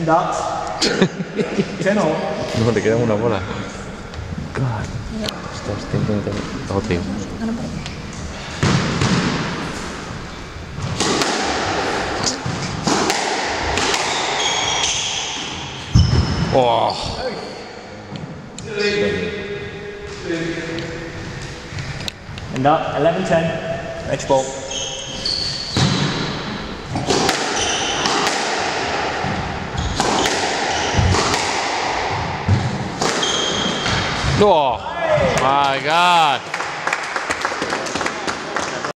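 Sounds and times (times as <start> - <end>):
squash ball hitting rackets and walls: 8.4 - 10.2, 10.8 - 16.6, 24.9 - 34.5
shoes squeaking on wooden floor: 14.0 - 17.1, 24.5 - 28.2, 29.3 - 31.2, 32.5 - 34.3.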